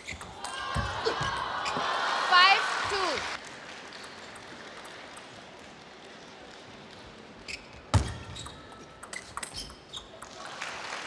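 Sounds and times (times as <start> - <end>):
table tennis ball clicks: 8.3 - 10.4.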